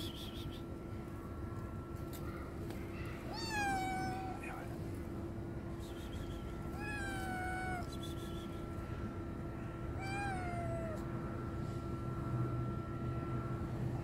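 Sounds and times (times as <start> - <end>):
steady low hum: 0.0 - 14.0
kitten meowing: 3.3 - 4.4, 6.8 - 8.0, 10.0 - 11.0.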